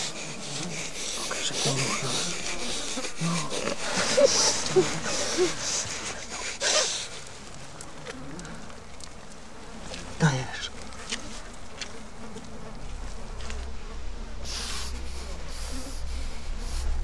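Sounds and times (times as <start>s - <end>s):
strained vocal sounds: 0.0s - 6.6s
heavy breathing: 0.0s - 7.4s, 14.4s - 17.0s.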